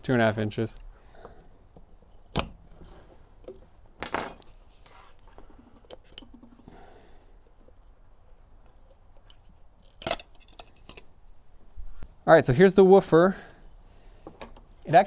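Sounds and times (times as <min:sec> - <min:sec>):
rustle of handling: 0:04.4 - 0:06.2.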